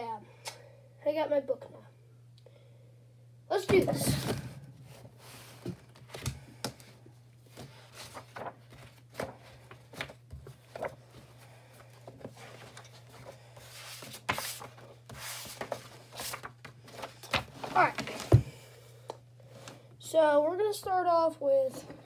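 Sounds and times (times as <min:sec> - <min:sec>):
steady low hum: 0:00.0 - 0:22.0
pages turning: 0:07.5 - 0:18.4
paper rustling: 0:07.5 - 0:18.4.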